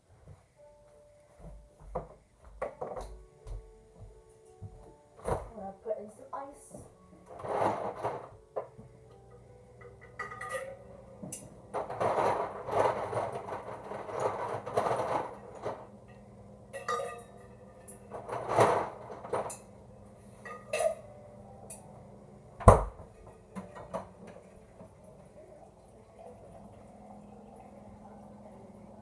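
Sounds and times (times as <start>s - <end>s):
rustling handling noise: 11.3s - 16.1s.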